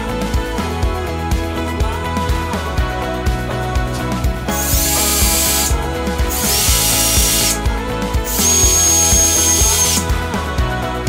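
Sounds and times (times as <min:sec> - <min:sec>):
background music: 0:00.0 - 0:11.0
drill whining: 0:04.5 - 0:10.3.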